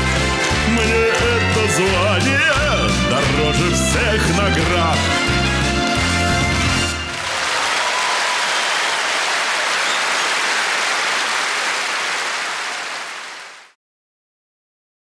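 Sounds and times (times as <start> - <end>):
audience applause: 0.0 - 1.9, 6.5 - 13.8.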